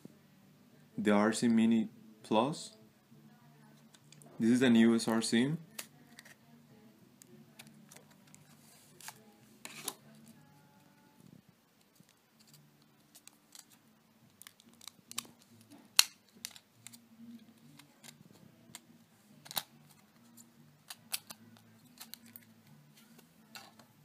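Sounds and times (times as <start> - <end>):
plastic blister pack crackling: 11.9 - 17.0.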